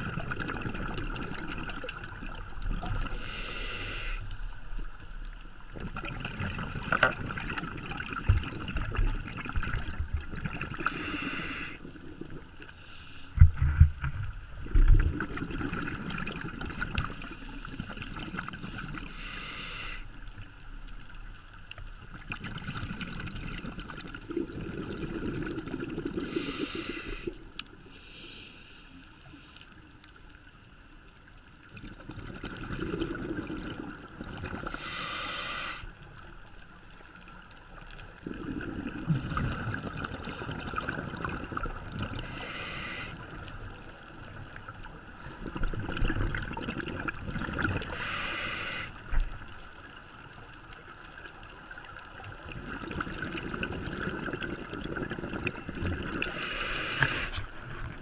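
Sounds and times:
exhaled bubbles bursting: 0:00.0 - 0:03.1, 0:05.8 - 0:10.9, 0:14.6 - 0:17.2, 0:22.2 - 0:26.4, 0:31.7 - 0:34.8, 0:38.1 - 0:42.4, 0:45.4 - 0:48.0, 0:52.4 - 0:56.4
diver breathing through regulator: 0:03.0 - 0:04.3, 0:10.8 - 0:11.8, 0:19.0 - 0:20.1, 0:26.2 - 0:28.9, 0:34.6 - 0:35.9, 0:42.2 - 0:43.2, 0:47.9 - 0:49.0, 0:56.2 - 0:57.5.

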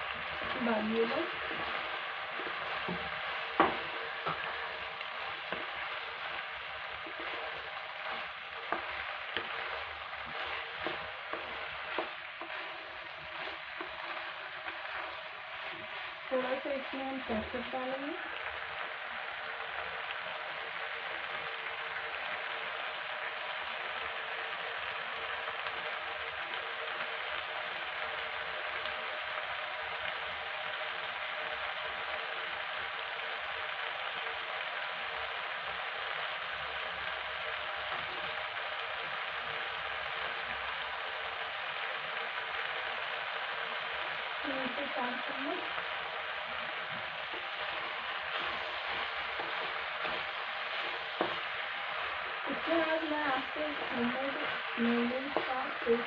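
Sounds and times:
food sizzling in a pot: 0:00.0 - 0:56.0.

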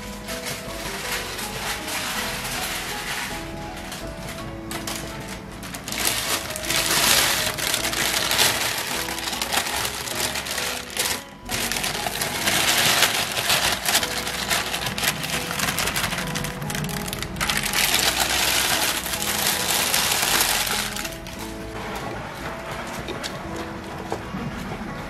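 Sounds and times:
background music: 0:00.0 - 0:25.0.

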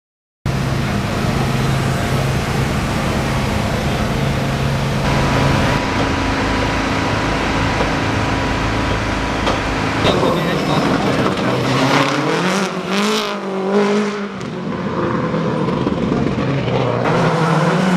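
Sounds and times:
motor hum: 0:03.2 - 0:09.8.

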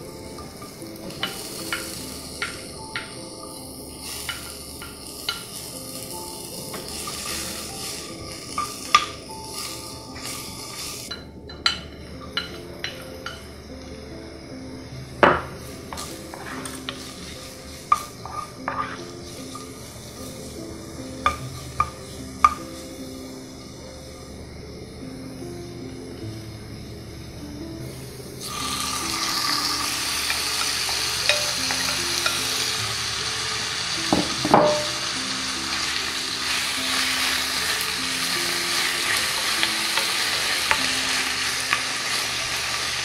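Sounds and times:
onions sizzling in a frying pan: 0:00.0 - 0:25.0, 0:27.8 - 0:43.0
soft background music: 0:00.0 - 0:43.0
wooden spoon stirring: 0:16.0 - 0:19.9
utensils knocking against pan: 0:30.3 - 0:32.5, 0:34.1 - 0:35.0.

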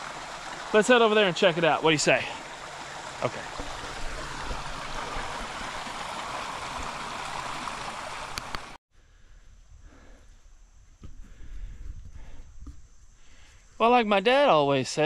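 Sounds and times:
water running through a drainage cut: 0:00.0 - 0:08.8
quiet outdoor background: 0:00.0 - 0:15.0.

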